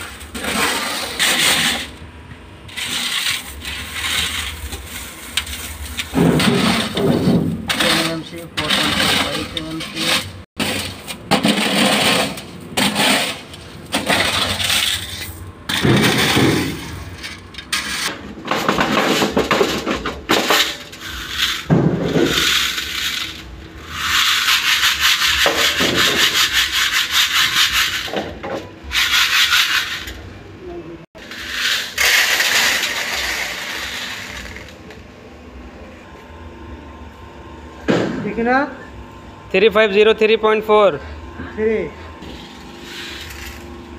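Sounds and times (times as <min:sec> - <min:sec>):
gravel rattling in metal sieves: 0:02.7 - 0:18.0, 0:20.4 - 0:28.1, 0:31.2 - 0:34.8.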